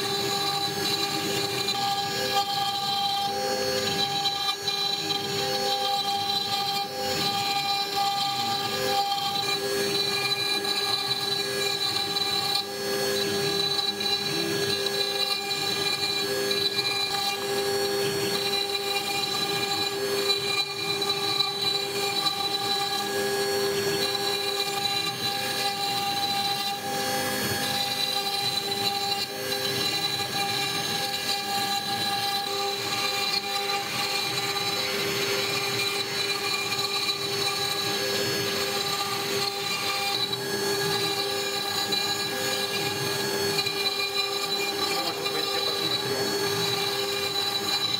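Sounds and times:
router spindle whine: 0.0 - 47.9
bit grinding sandstone: 43.5 - 47.9.

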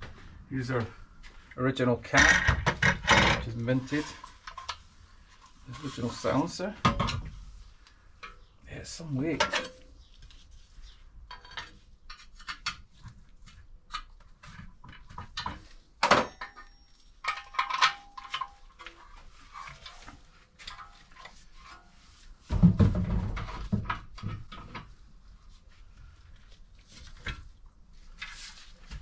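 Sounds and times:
metallic ring: 16.2 - 18.6
metal parts clinking and scraping: 16.2 - 21.4.

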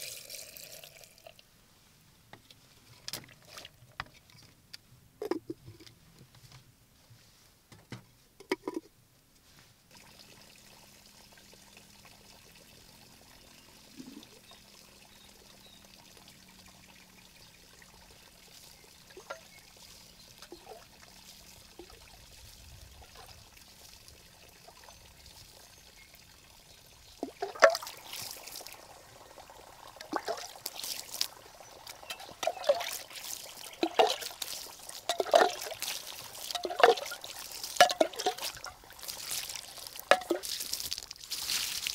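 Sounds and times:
water pouring and splashing on soil: 0.0 - 1.4, 9.9 - 41.9.

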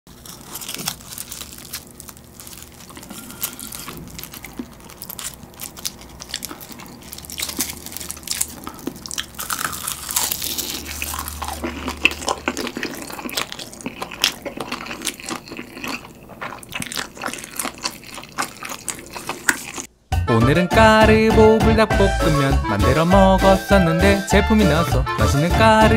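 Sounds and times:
crisp seaweed crackling: 0.1 - 19.9
crunching: 0.1 - 19.9
wet chewing of noodles: 0.1 - 19.9.

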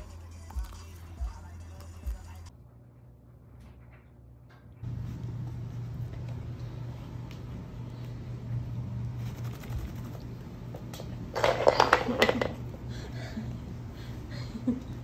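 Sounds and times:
steady low hum: 2.5 - 11.7, 12.4 - 15.0.

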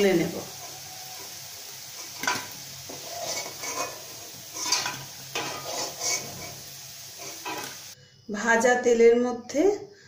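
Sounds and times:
oil sizzling: 0.0 - 8.0
metal spatula scraping a pan: 0.4 - 8.0.

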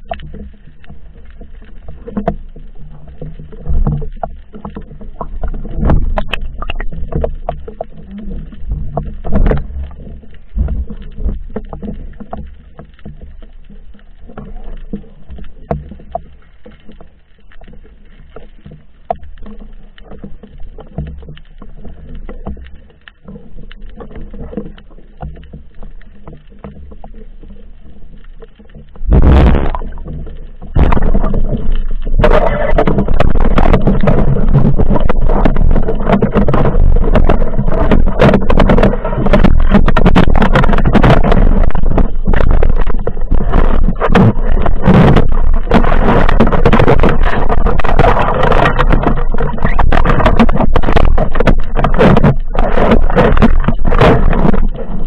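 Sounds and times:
underwater rushing water: 0.0 - 55.0
water lapping against camera: 0.0 - 55.0
loud splash: 29.0 - 30.0, 30.7 - 31.4.

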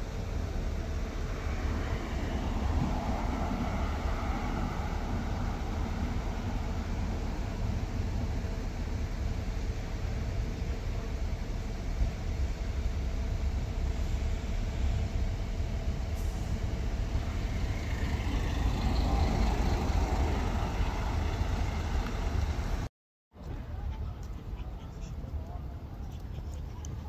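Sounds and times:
traffic rumble: 0.0 - 27.0
vehicle passing: 16.8 - 22.9.

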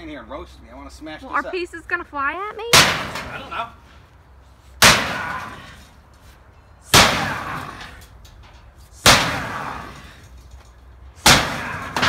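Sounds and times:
sledgehammer clanging on steel: 6.9 - 12.0.

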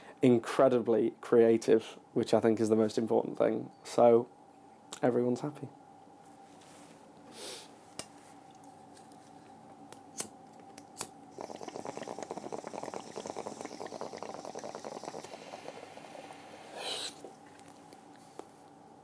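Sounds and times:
bong water bubbling: 11.3 - 17.4.

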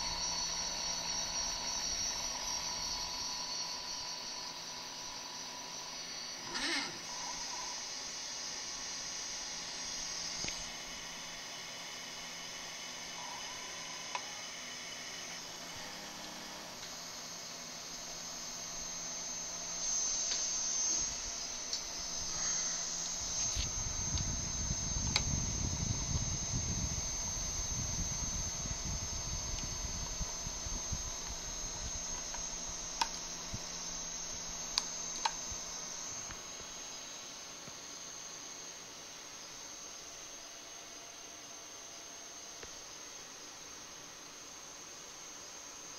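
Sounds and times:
motor whir rising and falling: 0.0 - 40.7
stepper motors running: 0.0 - 40.7
high-pitched whine: 0.0 - 45.9
click: 34.8 - 35.4.

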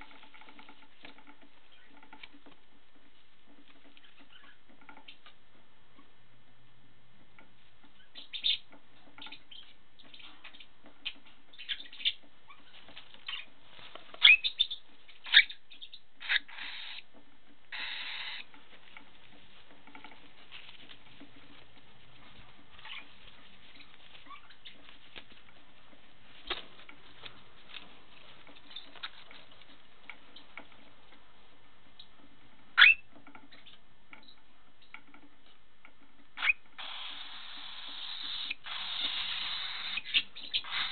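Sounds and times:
cockatiel chirping: 8.0 - 13.5, 14.2 - 17.0, 17.7 - 18.5, 23.7 - 24.8, 32.8 - 33.8, 36.4 - 40.9
wings fluttering: 17.7 - 30.6.

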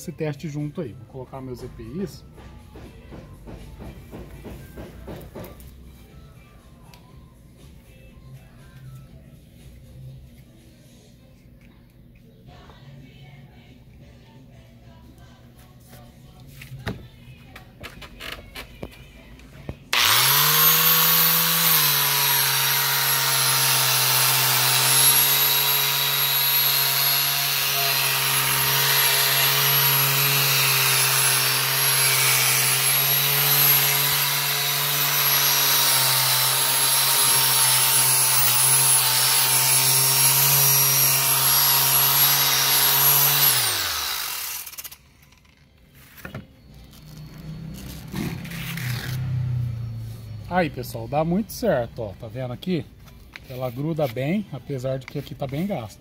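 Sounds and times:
angle grinder sanding wood: 19.9 - 44.8.

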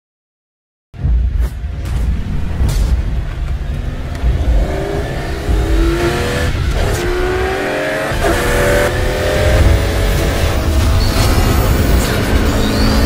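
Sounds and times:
car engine accelerating hard: 3.2 - 13.0.

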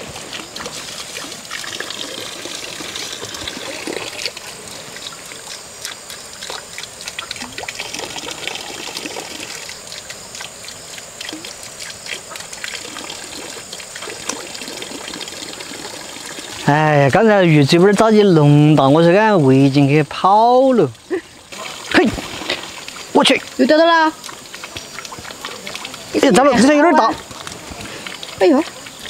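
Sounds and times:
water trickling and lapping: 0.0 - 29.0
small splashy clicks: 24.2 - 26.2.

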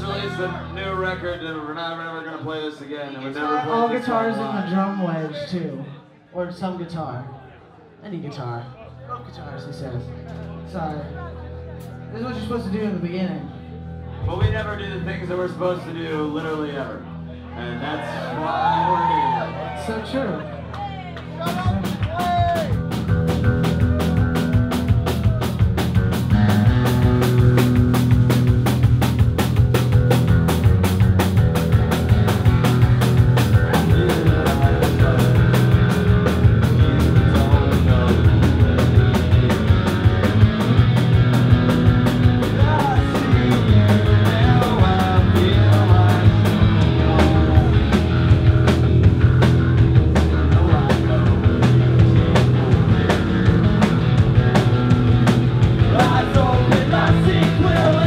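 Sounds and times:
electric bass: 0.0 - 2.0, 9.2 - 58.0
distorted electric guitars: 21.2 - 58.0
drum kit fast beat: 21.4 - 58.0.

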